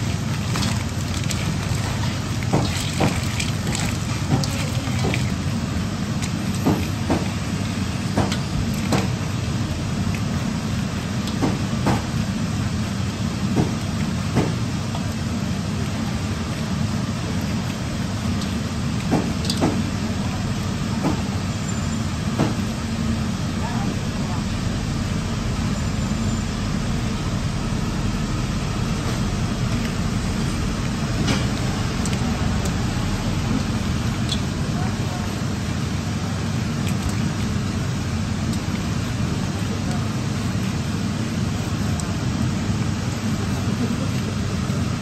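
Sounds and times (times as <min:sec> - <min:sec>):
hands kneading and slapping filling: 0:00.0 - 0:21.3
low background hum: 0:00.0 - 0:45.0.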